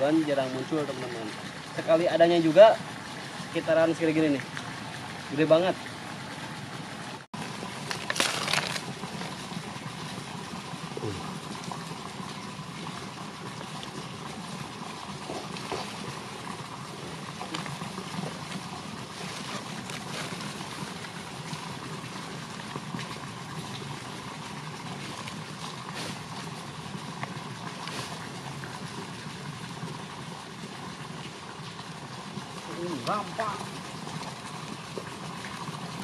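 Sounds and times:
rustling and snapping leaf litter: 7.7s - 9.3s.

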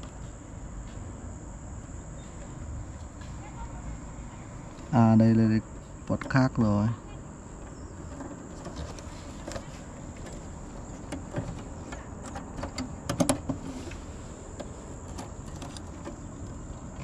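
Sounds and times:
crickets chirring: 0.0s - 17.0s
cable connectors clicking and rattling: 8.1s - 13.7s.

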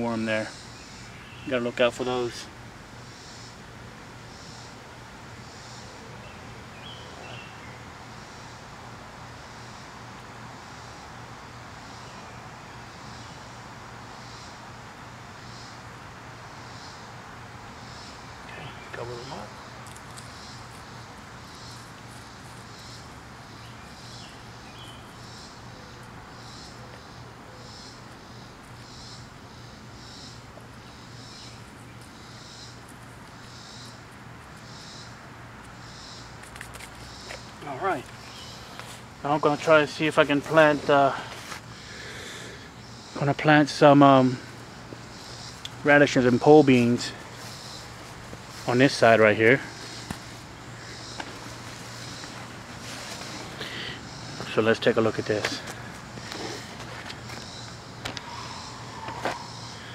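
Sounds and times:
bird chirping: 0.0s - 3.6s, 5.4s - 8.6s, 17.8s - 59.9s
faint high hiss: 0.0s - 56.6s.

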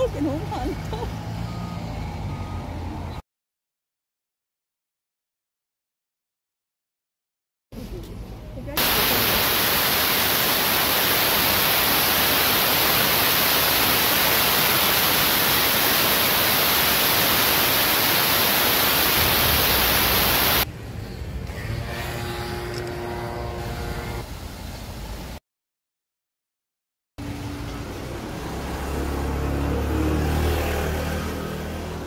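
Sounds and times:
loud steady hiss: 8.8s - 20.7s.

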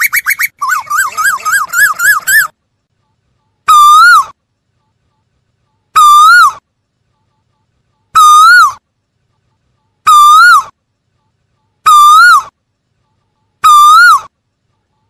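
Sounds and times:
bird whistled calls: 0.0s - 2.5s.

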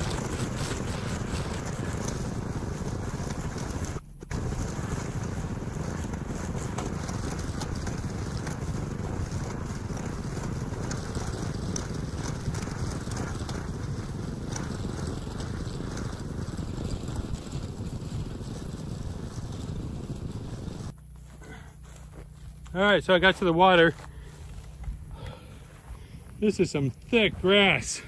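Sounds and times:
wind rumble on microphone: 0.0s - 21.0s
string trimmer cutting grass: 0.0s - 22.8s, 23.4s - 27.4s.

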